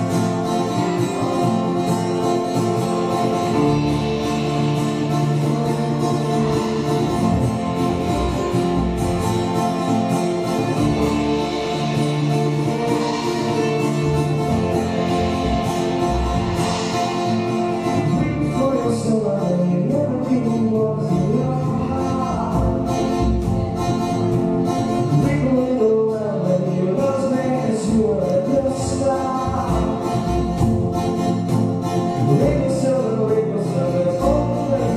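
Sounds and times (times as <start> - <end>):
acoustic folk-rock band playing: 0.0 - 34.9
man singing: 17.8 - 23.5, 25.0 - 30.7, 32.1 - 34.9.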